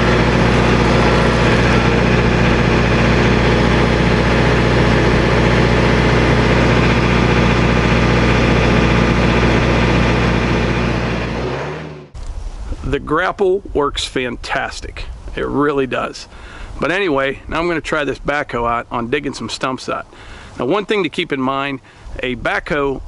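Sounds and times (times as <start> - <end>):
tractor diesel engine running: 0.0 - 12.9.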